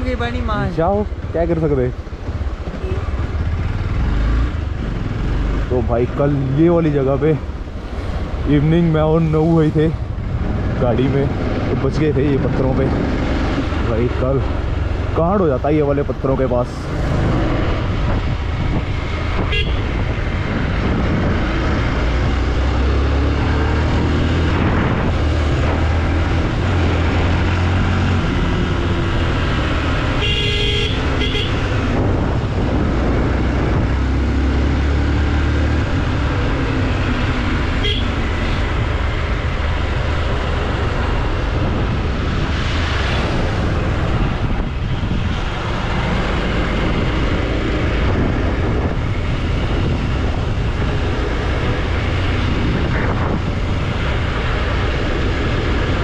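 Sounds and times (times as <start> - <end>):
motorcycle running: 0.0 - 56.0
wind and road noise: 0.0 - 56.0
vehicle horn toots: 19.5 - 19.9, 30.2 - 31.7, 37.8 - 38.2.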